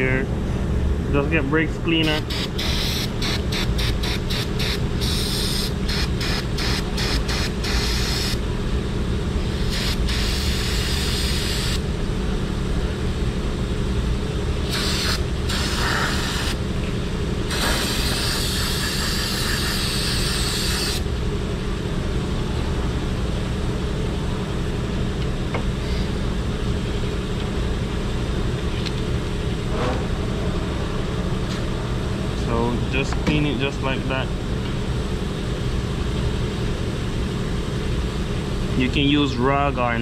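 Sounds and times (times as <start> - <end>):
steady low hum: 0.0 - 40.0
aerosol can spraying: 2.2 - 8.4, 14.7 - 16.5.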